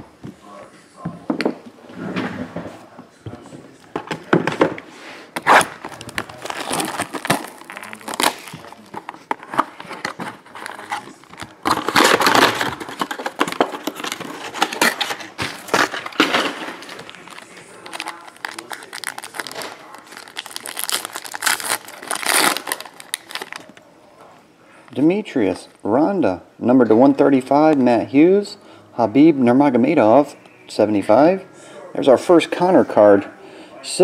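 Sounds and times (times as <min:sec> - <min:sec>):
plastic shrink wrap crinkling: 0:05.4 - 0:23.9.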